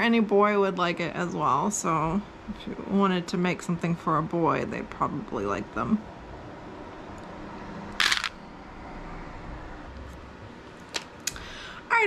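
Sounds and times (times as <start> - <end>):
beads clattering into plastic basket: 8.0 - 8.4.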